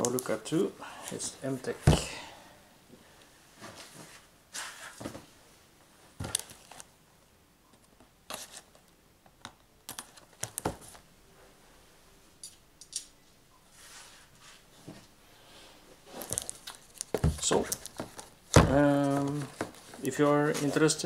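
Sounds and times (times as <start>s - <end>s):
cardboard and plastic box handling: 16.2s - 21.0s.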